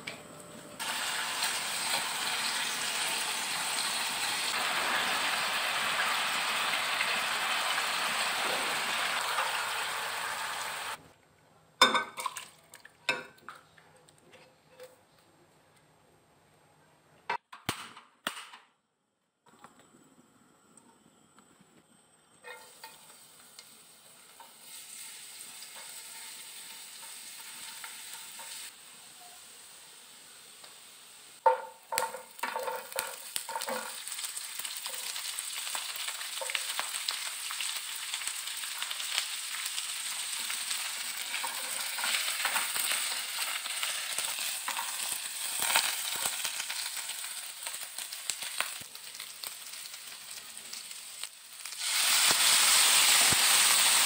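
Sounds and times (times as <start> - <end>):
garlic sizzling in hot oil: 0.8 - 11.0, 22.4 - 54.0
vegetables clattering into a pan: 31.4 - 38.2.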